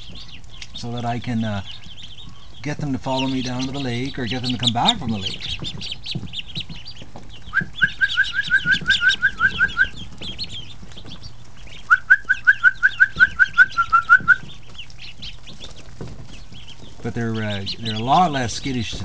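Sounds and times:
ducklings peeping: 0.0 - 19.0
person whistling rising notes: 11.9 - 14.4.

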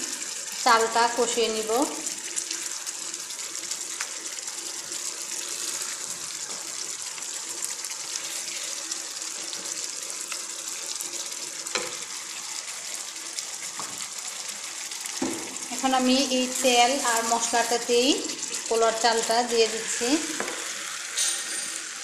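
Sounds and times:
sauce bubbling and sizzling: 0.0 - 22.0
wooden spatula knocking on pan: 15.2 - 15.6.

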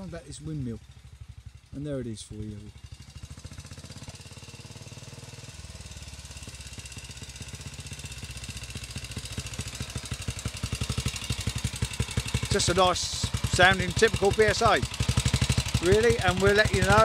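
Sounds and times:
motorcycle engine thumping: 2.7 - 17.0.

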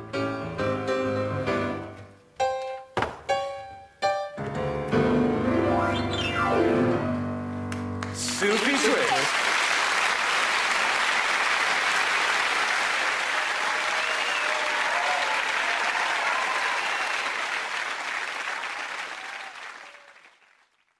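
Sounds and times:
studio audience applauding: 8.0 - 20.9.

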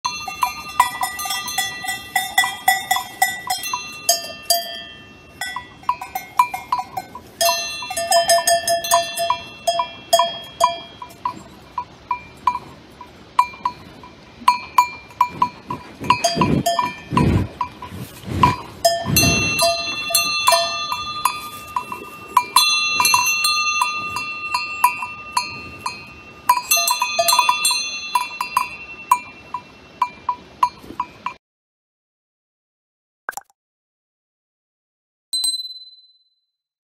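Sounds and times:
cowbells clanking: 0.0 - 31.4
cow breath puffs: 15.2 - 20.3.

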